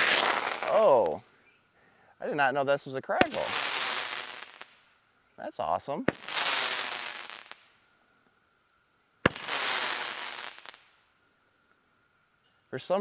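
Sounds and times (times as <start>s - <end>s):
dense firework crackling: 0.0s - 1.2s, 3.1s - 5.0s, 5.9s - 7.9s, 9.2s - 11.1s
firework shot pop: 3.2s - 4.8s, 9.2s - 10.9s.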